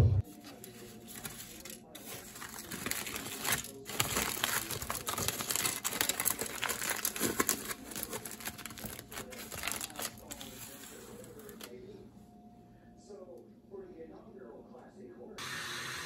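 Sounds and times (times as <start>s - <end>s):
packaging crinkling: 0.2s - 11.8s.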